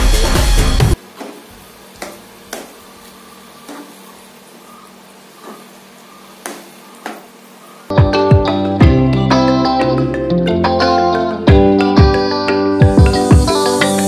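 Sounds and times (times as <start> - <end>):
steady low hum: 0.6 - 9.0.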